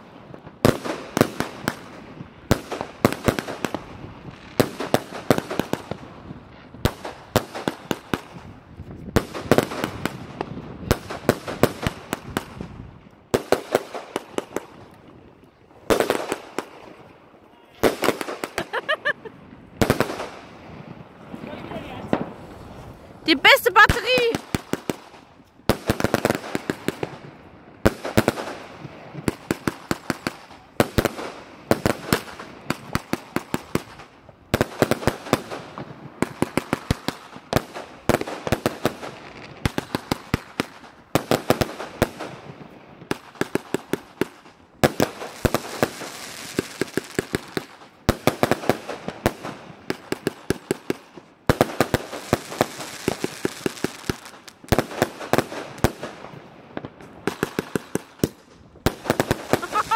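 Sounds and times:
firework battery rapid bangs: 57.2 - 59.9.

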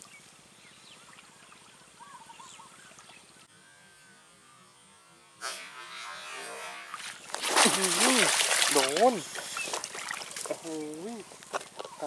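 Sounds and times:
faint bird chirps: 0.0 - 3.5
fish splashing at surface: 6.9 - 10.6.

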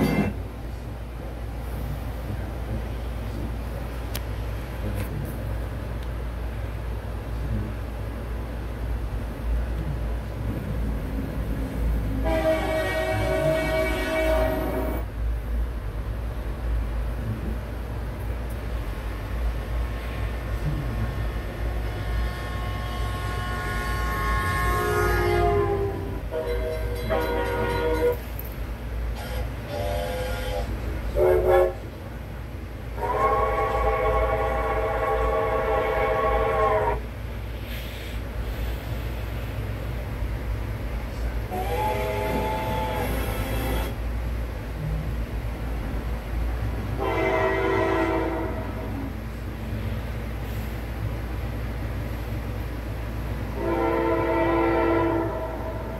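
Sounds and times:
locomotive air horn blast: 12.2 - 15.0, 21.8 - 28.3, 29.2 - 31.9, 33.0 - 37.0, 41.5 - 44.0, 47.0 - 49.0, 53.6 - 55.9.

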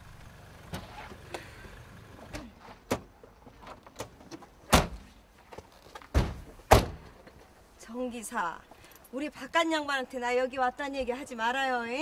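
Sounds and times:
car door thunk: 6.1 - 7.1.

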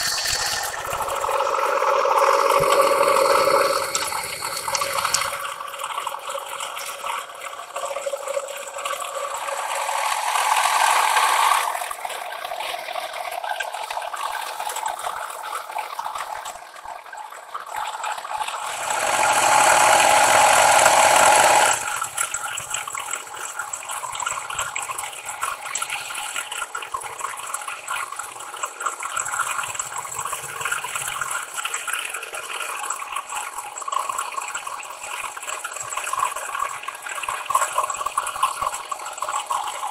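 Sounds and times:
milling cutter cutting metal: 0.0 - 1.5, 2.4 - 5.4, 18.6 - 22.1.

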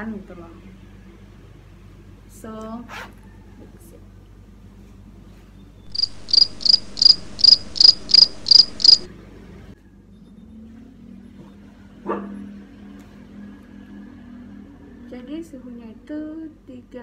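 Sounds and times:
thermometer high-pitched beeps: 5.9 - 9.1.

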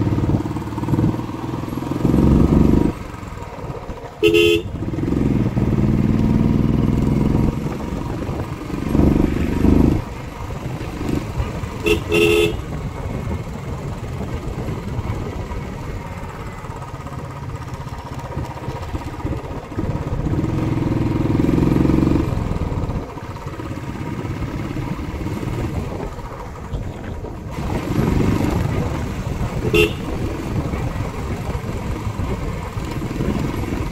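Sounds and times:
motorcycle engine running: 0.0 - 33.9
horn beeps: 11.8 - 12.6, 29.7 - 30.1.

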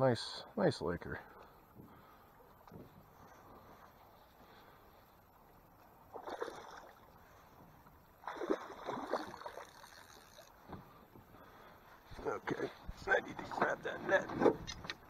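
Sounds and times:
fish thrashing and splashing: 6.1 - 7.1, 8.2 - 10.6.

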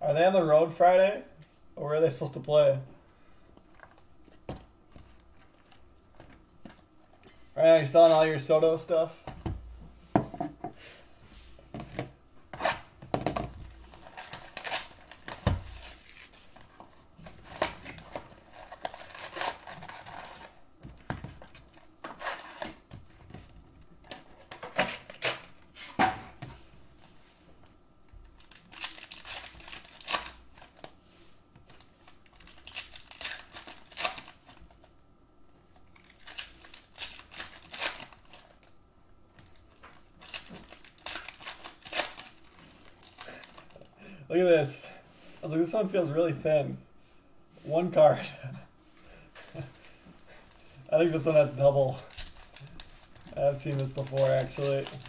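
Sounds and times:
foil packs crinkling and tearing: 13.7 - 16.7, 17.3 - 20.6, 28.3 - 31.0, 31.8 - 34.9, 35.8 - 38.8, 39.4 - 43.9, 49.5 - 55.0.

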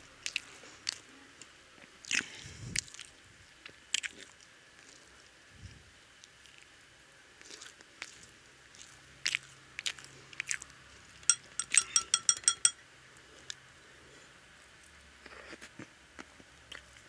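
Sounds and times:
person chewing food: 7.4 - 10.6.

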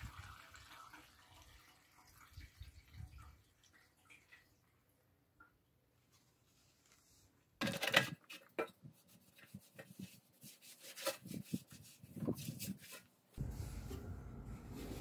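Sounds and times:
cloth rubbing metal tank: 9.4 - 15.0.

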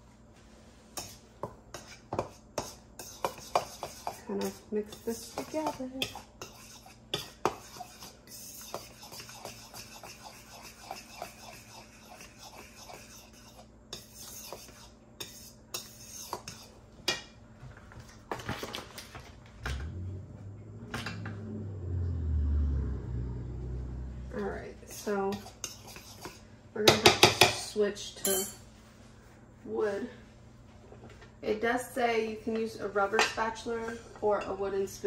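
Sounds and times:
fork whisking flour in a bowl: 0.7 - 16.8, 24.3 - 28.5
low rumble of handling noise: 17.5 - 24.9.

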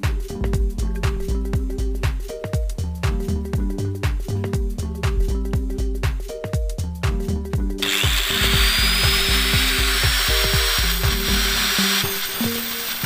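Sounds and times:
background music with steady beat: 0.0 - 13.0
angle grinder whining: 7.8 - 13.0.

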